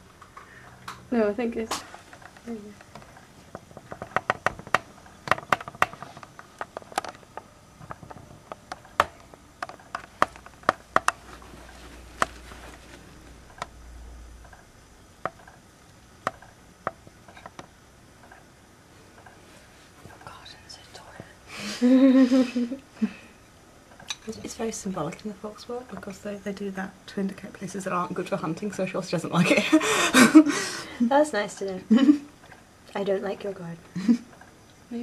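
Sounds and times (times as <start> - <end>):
sharp irregular clicks and taps: 2.1 - 11.2, 14.4 - 18.4.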